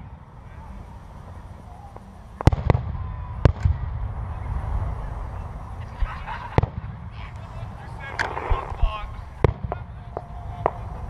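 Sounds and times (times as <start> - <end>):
low rumble: 0.0 - 11.0
fireworks shells bursting: 6.0 - 11.0.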